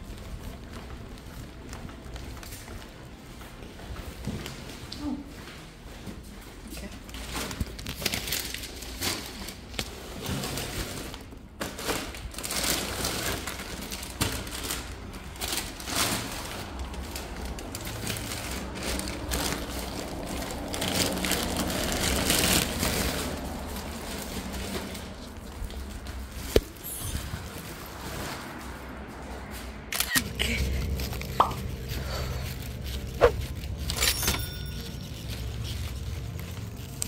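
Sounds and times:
plastic bags crinkling: 0:07.2 - 0:28.7
fabric rubbing on microphone: 0:30.9 - 0:34.0.

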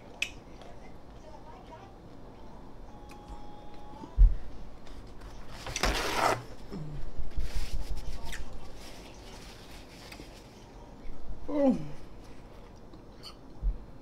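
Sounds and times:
paper towel rustling: 0:04.8 - 0:06.6, 0:07.3 - 0:10.7.

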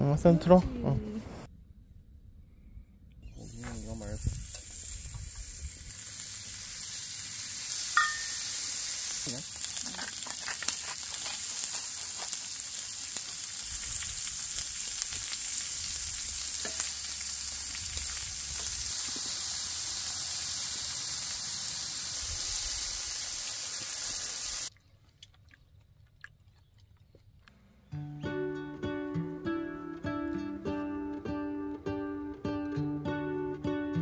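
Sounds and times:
fire hissing: 0:03.3 - 0:24.7
crackling pops of burning cones: 0:09.2 - 0:19.6.

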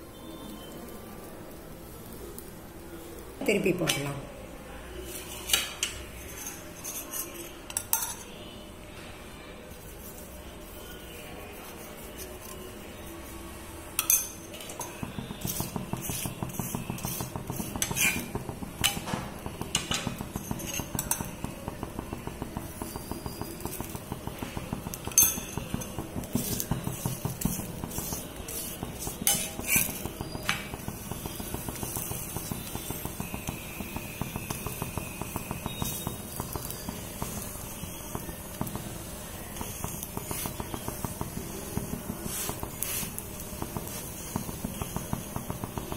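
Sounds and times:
flatbread frying: 0:00.0 - 0:08.4, 0:09.2 - 0:45.9
metal clinking on griddle: 0:05.5 - 0:08.4, 0:14.0 - 0:21.5, 0:22.2 - 0:33.6
soft taps and scrapes: 0:22.6 - 0:33.4.

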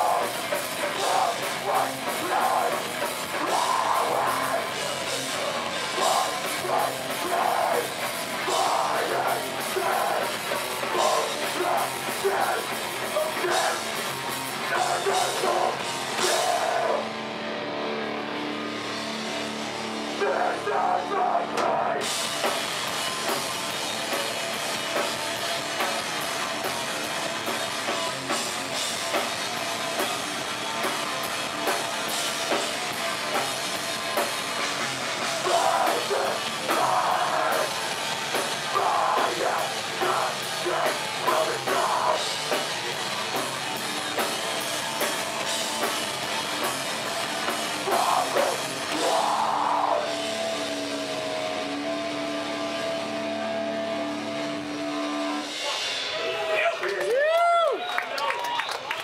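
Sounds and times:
screamed vocals: 0:00.0 - 0:13.9, 0:14.6 - 0:17.1, 0:35.4 - 0:37.8, 0:38.6 - 0:42.3, 0:47.8 - 0:50.3
distorted guitars and bass: 0:00.0 - 0:57.7
drum kit: 0:00.0 - 0:57.8.

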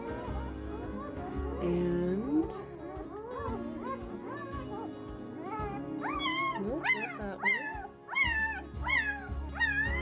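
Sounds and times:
puppy squeaky crying: 0:02.8 - 0:10.0.

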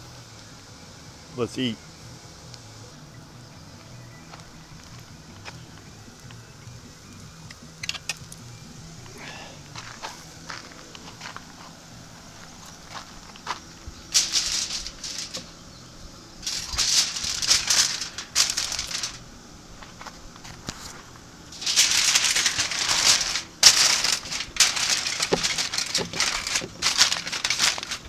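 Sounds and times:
aluminium foil crinkling: 0:09.2 - 0:28.0.

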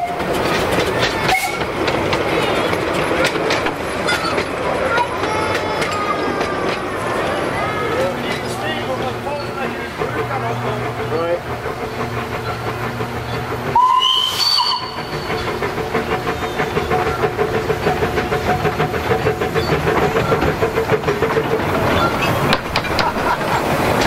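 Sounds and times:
steam locomotive hiss and exhaust: 0:00.1 - 0:24.0
steam locomotive whistle toot: 0:01.3 - 0:01.7, 0:13.7 - 0:15.3.

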